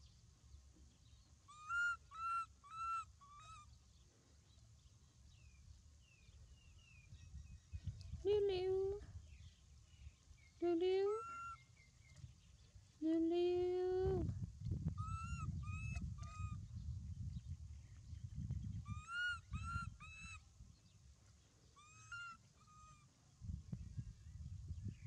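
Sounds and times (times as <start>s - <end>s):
animal calls: 21.8s - 23.0s.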